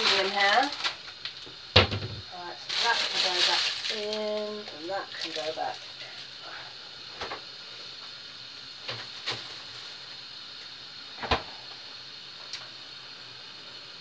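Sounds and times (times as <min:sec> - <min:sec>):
kitchen items knocking: 0:01.8 - 0:02.3.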